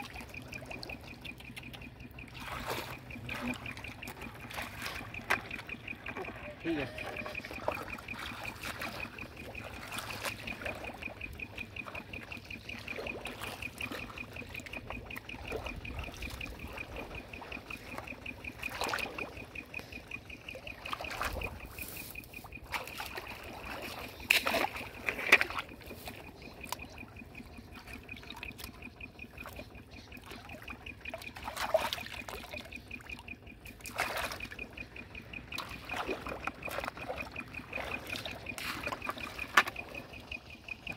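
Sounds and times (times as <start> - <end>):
high fast-pulsing trill: 0.0 - 25.0
wading through muddy water: 0.0 - 40.9.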